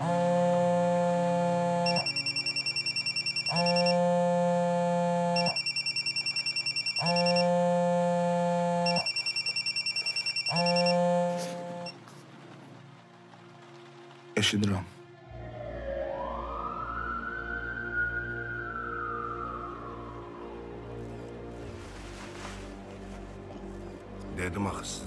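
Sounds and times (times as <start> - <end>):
phone ringtone warbling: 1.9 - 4.0, 5.3 - 7.6, 8.8 - 11.9.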